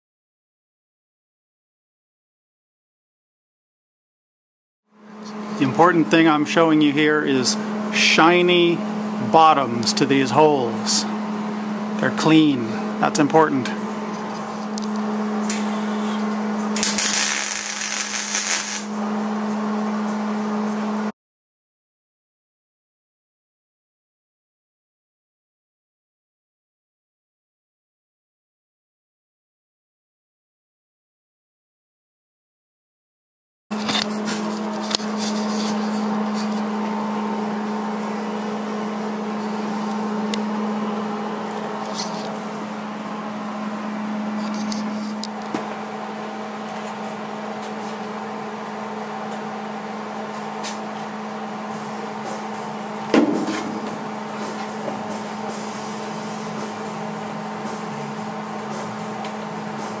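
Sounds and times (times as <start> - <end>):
steady low hum: 5.0 - 21.1, 33.7 - 60.0
welding arc crackling: 16.8 - 18.9.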